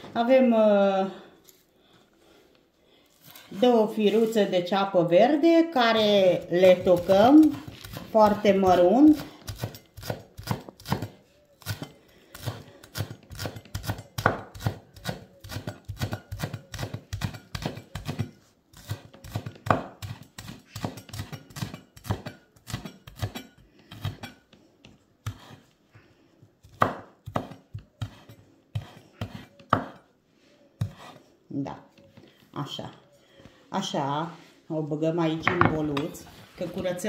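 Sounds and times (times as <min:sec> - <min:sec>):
knife chopping on wooden board: 0:09.5 - 0:24.4, 0:26.7 - 0:30.0, 0:30.8 - 0:31.2.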